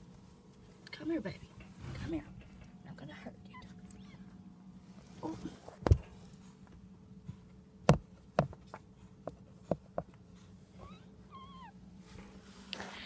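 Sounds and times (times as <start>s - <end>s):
small dog whimpering: 3.5s - 4.3s, 10.8s - 11.8s.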